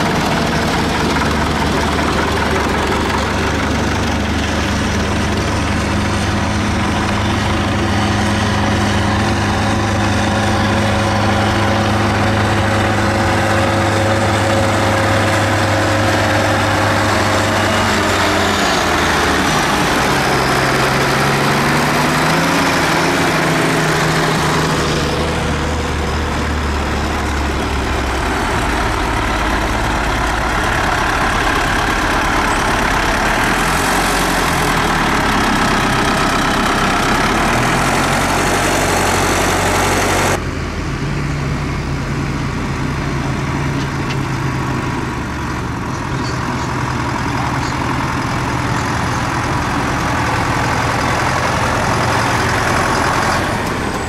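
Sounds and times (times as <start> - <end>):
tractor diesel engines driving past: 0.0 - 54.0.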